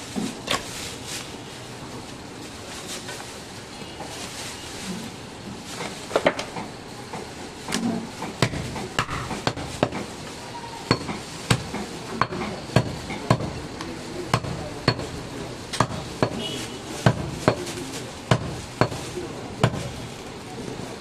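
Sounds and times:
cleaver chopping bone on wood: 0:07.7 - 0:10.0, 0:15.8 - 0:16.4, 0:18.3 - 0:19.0.

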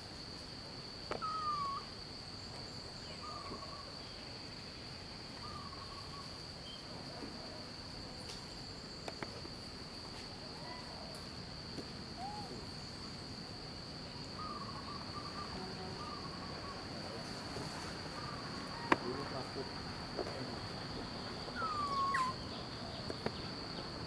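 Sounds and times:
insects droning: 0:00.0 - 0:24.0
short bird calls: 0:01.2 - 0:01.9, 0:12.2 - 0:12.6, 0:21.5 - 0:23.2.

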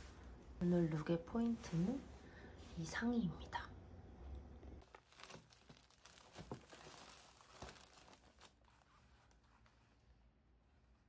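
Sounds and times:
plastic packaging crinkling: 0:04.8 - 0:09.5.

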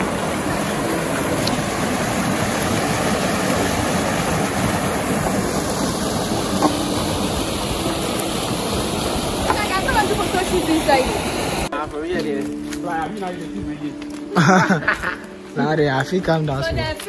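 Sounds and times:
stream water rushing over rocks: 0:00.0 - 0:11.7.

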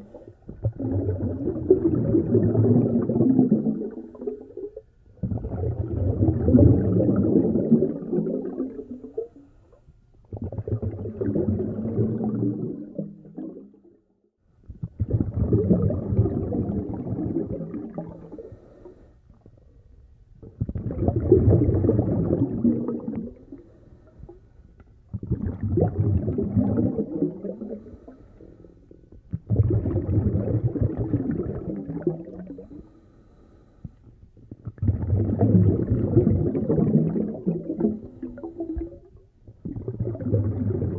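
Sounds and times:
snorkel breathing underwater: 0:18.0 - 0:19.2, 0:27.0 - 0:29.0, 0:32.4 - 0:34.1.

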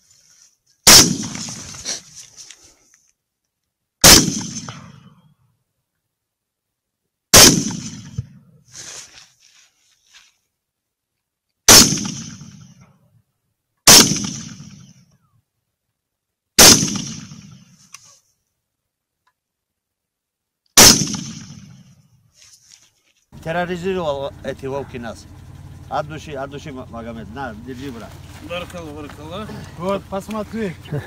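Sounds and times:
rifle shots: 0:00.8 - 0:02.0, 0:04.0 - 0:05.2, 0:07.3 - 0:08.4, 0:11.7 - 0:12.8, 0:13.8 - 0:15.0, 0:16.6 - 0:17.8, 0:20.8 - 0:22.0.

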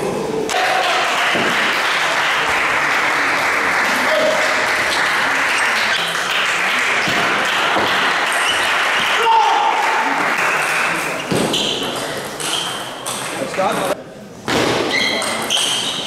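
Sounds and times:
spectators clapping: 0:00.5 - 0:11.3.

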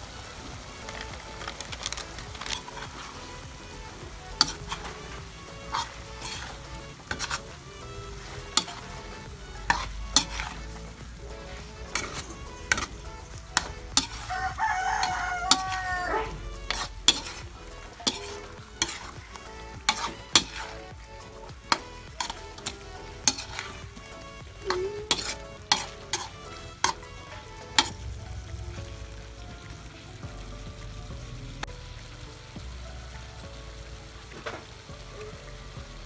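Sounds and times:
light frying sizzle: 0:00.0 - 0:36.0
metal utensil scraping a wok: 0:00.8 - 0:29.0
utensil clanking against pan: 0:08.5 - 0:10.6, 0:16.7 - 0:17.4, 0:18.0 - 0:19.2, 0:19.9 - 0:20.9, 0:21.7 - 0:23.7, 0:25.0 - 0:27.0
rooster crowing: 0:14.2 - 0:16.4.

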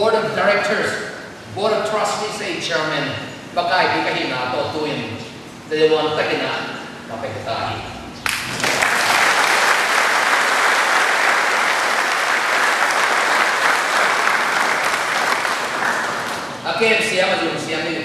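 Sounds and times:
audience applauding: 0:08.2 - 0:16.6.

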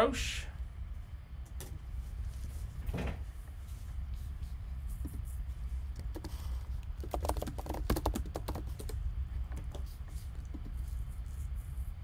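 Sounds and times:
steady low hum: 0:00.0 - 0:12.0
keyboard typing clicks: 0:06.9 - 0:09.0.

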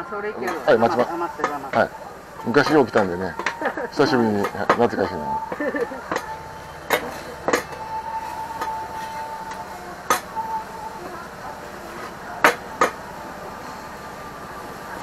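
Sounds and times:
steady sizzle: 0:00.0 - 0:15.0
metal spatulas scraping on griddle: 0:04.4 - 0:10.3.

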